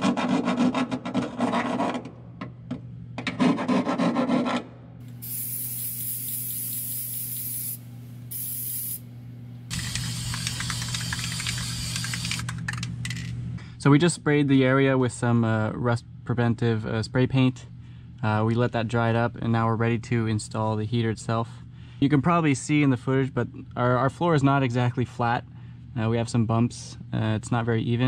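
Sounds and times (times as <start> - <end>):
metal file rasping on sheet metal: 3.3 - 4.5
aerosol spray can hissing: 5.1 - 12.3.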